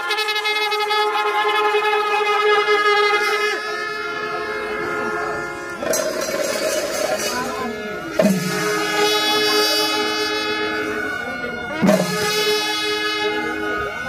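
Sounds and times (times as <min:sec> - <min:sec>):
brass horns blowing long notes: 0:00.0 - 0:14.0.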